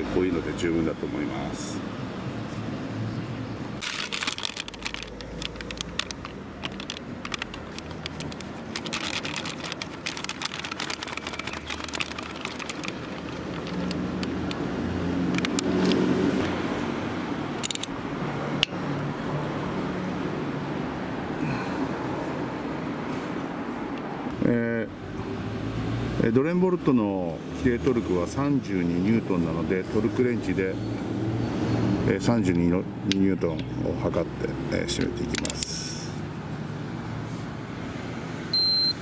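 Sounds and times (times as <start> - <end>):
hand tool clicks and rustling: 3.8 - 16.6, 17.5 - 18.0, 35.0 - 36.0.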